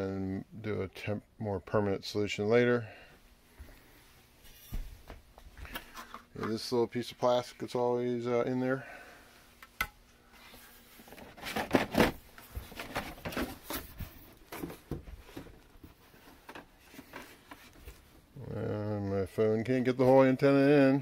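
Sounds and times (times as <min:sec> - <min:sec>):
cardboard and paper rustling: 0:10.4 - 0:18.1.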